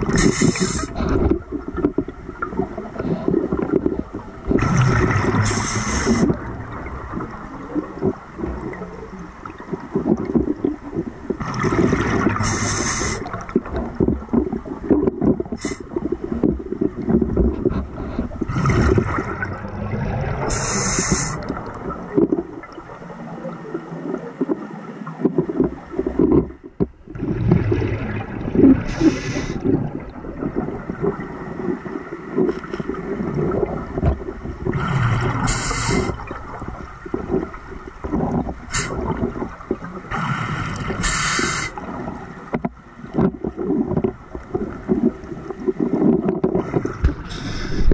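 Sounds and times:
exhaled bubbles gurgling: 0.0 - 47.9
underwater water churn: 0.0 - 47.9
diver inhaling through regulator: 0.1 - 1.3, 5.4 - 6.4, 12.4 - 13.3, 20.4 - 21.4, 28.9 - 29.7, 34.8 - 36.2, 40.1 - 41.8, 47.3 - 47.9.

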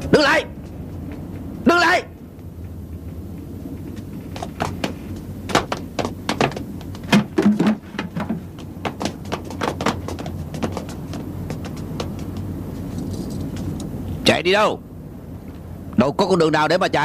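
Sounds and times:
low steady hum: 0.0 - 17.0
footsteps and thuds on rooftop: 3.4 - 14.0.

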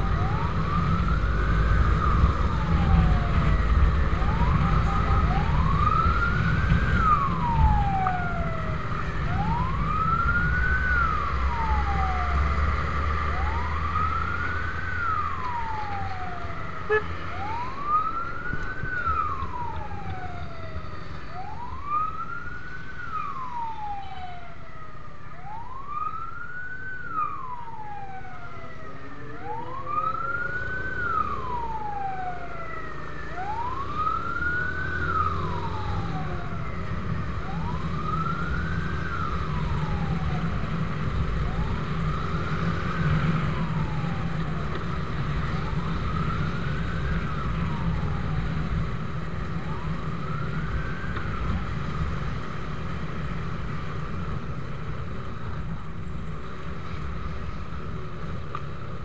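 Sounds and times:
wind rumble: 0.0 - 28.9, 29.5 - 59.0
fire engine siren wailing: 0.0 - 59.0.

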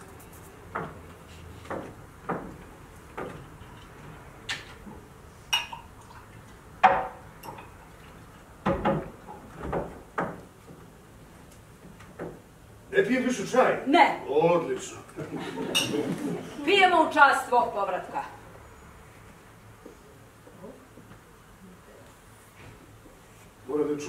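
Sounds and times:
glasses and bottle clinking on table: 5.5 - 5.9, 15.6 - 16.1.

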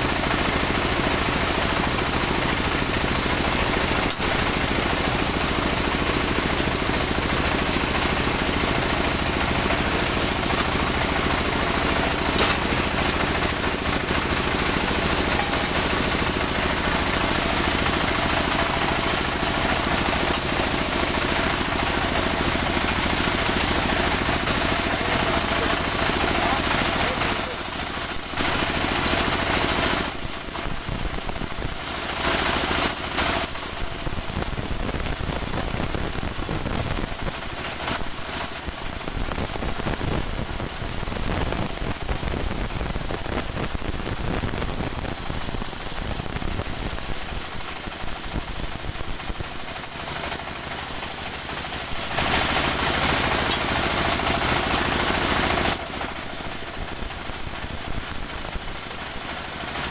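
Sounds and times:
stationary engine chugging: 0.0 - 35.8
band saw whine cutting log: 0.0 - 59.9.

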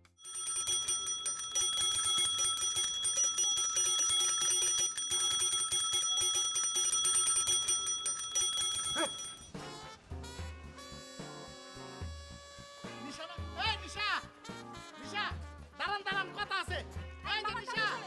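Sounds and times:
bell ringing rapidly: 0.0 - 9.6.

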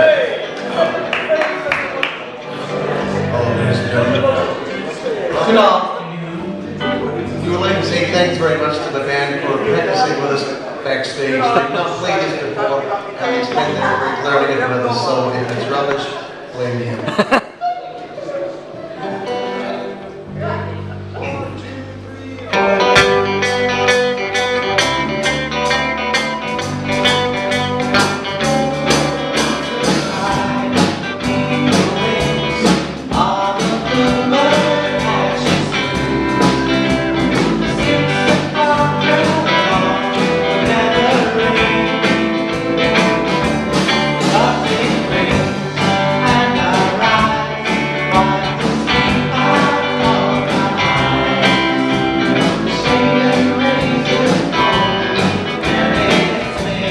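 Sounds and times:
live rock band playing: 6.4 - 9.0, 18.7 - 56.9
man singing: 26.6 - 43.3, 43.9 - 56.9.

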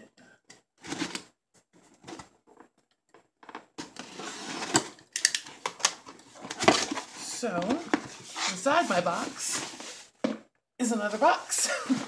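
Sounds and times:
cardboard scraping and rustling: 3.8 - 5.0, 6.0 - 10.3.

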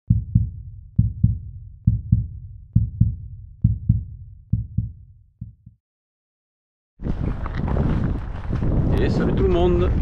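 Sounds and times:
heartbeat double thumps: 0.1 - 5.8.

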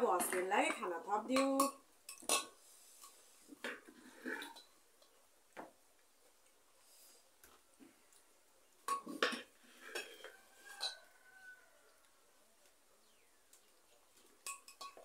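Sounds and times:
spoon clinking on metal pot: 14.4 - 15.0.

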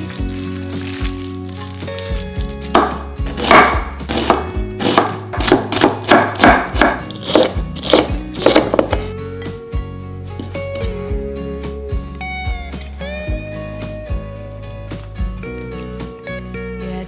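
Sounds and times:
knife chopping on wooden board: 2.7 - 9.0.

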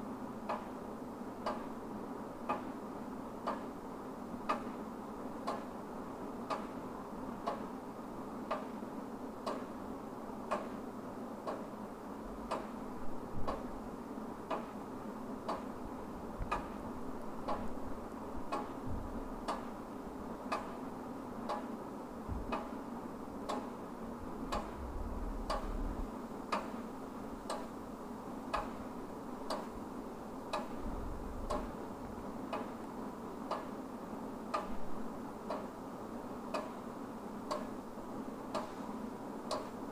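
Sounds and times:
wall clock ticking: 0.5 - 0.7, 1.5 - 1.7, 3.4 - 3.7, 4.5 - 4.7, 6.4 - 6.8, 9.4 - 9.7, 10.5 - 10.8, 12.5 - 12.8, 13.4 - 13.7, 14.5 - 14.8, 15.4 - 15.7, 16.4 - 16.8, 17.4 - 17.8, 18.5 - 18.8, 19.4 - 19.8, 20.5 - 20.8, 21.5 - 21.7, 22.4 - 22.8, 23.5 - 23.8, 24.4 - 24.8, 25.4 - 25.8, 26.5 - 26.8, 27.4 - 27.8, 28.5 - 28.8, 29.4 - 29.8, 30.5 - 30.8, 31.5 - 31.8, 32.4 - 32.8, 33.4 - 33.8, 34.5 - 34.8, 35.4 - 35.7, 36.5 - 36.8, 37.5 - 37.8, 38.5 - 38.8, 39.5 - 39.8
low hum: 24.2 - 26.2.

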